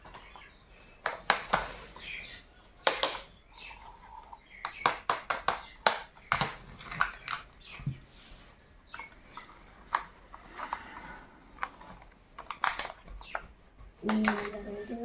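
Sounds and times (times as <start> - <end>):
plastic toy clicks and knocks: 2.8 - 3.3, 4.2 - 7.7, 11.6 - 13.4, 14.0 - 14.7.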